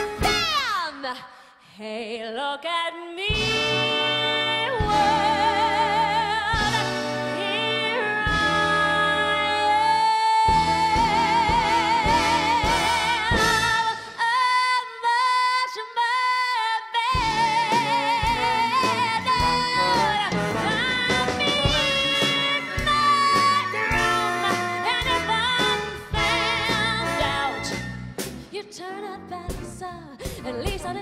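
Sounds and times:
orchestra playing: 0:00.0 - 0:00.6, 0:17.2 - 0:28.5
woman singing with vibrato: 0:00.2 - 0:31.0.

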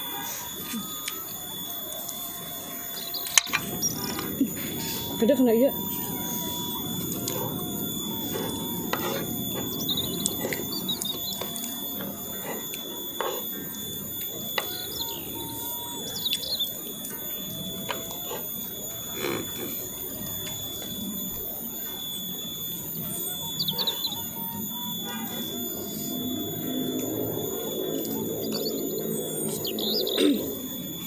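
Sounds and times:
high-pitched whine: 0:00.0 - 0:31.0
bird chirp: 0:02.9 - 0:04.1, 0:09.7 - 0:11.7, 0:14.6 - 0:16.8, 0:23.2 - 0:24.7, 0:27.0 - 0:30.5.

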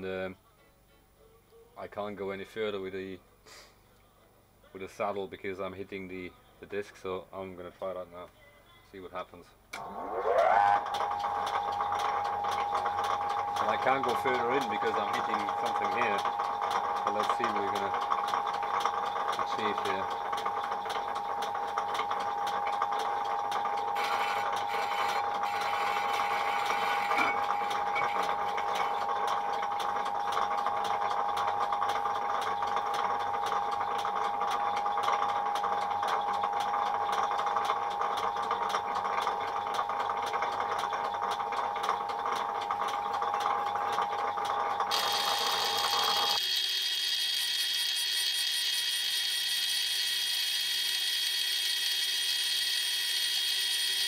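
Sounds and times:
lathe cutting metal ringing tone: 0:09.8 - 0:20.9, 0:23.8 - 0:38.5, 0:44.9 - 0:54.0.

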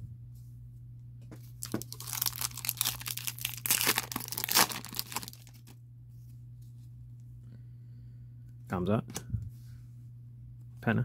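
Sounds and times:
foil wrapper tearing and crinkling: 0:01.6 - 0:05.7.

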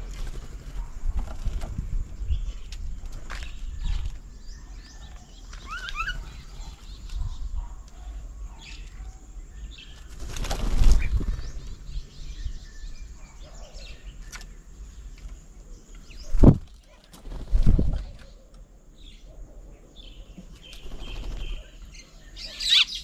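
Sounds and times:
wings flapping: 0:00.0 - 0:01.9, 0:10.0 - 0:11.5, 0:16.3 - 0:18.3, 0:20.7 - 0:21.7
birds chirping: 0:00.0 - 0:23.0.

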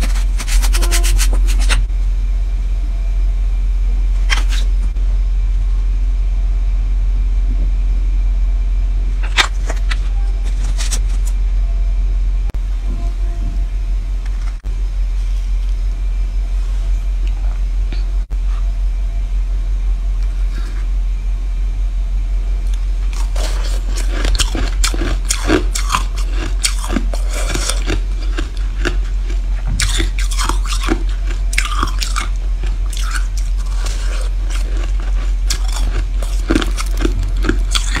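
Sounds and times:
low hum: 0:00.0 - 0:38.0
crunching bites into ice: 0:23.1 - 0:38.0.

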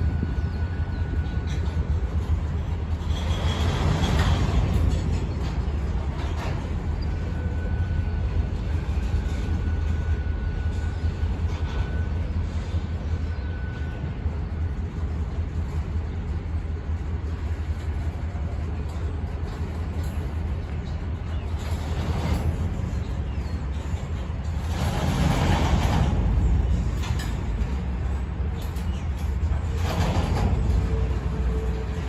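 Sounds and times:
train wheels rumbling on rail: 0:00.0 - 0:32.0
faint high squeal: 0:06.9 - 0:14.2.

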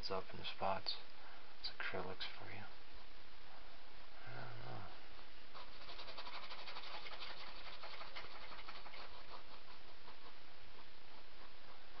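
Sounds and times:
paintbrush scrubbing on canvas: 0:05.5 - 0:12.0.

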